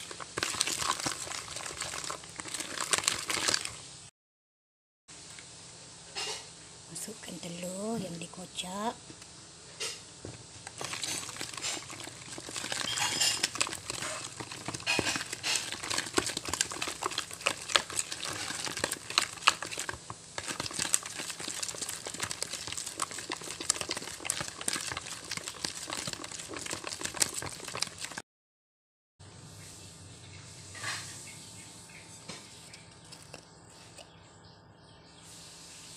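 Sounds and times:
spatula squelching and scraping dough: 0.0 - 3.8, 10.7 - 28.2.

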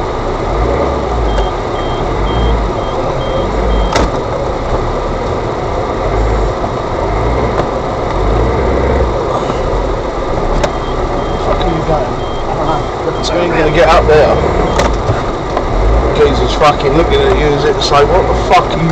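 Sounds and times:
high beeps: 1.2 - 4.0, 10.7 - 14.9.

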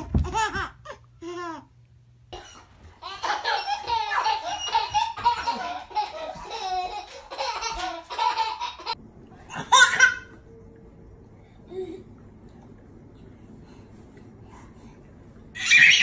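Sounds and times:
baby laughing: 2.4 - 9.0, 9.6 - 10.4, 15.6 - 16.0.

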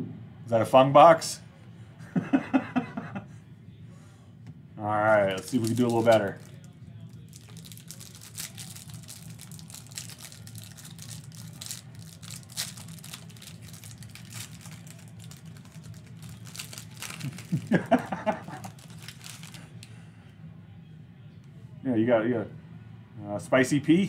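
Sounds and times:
plastic wrapper crinkling: 5.2 - 19.9.

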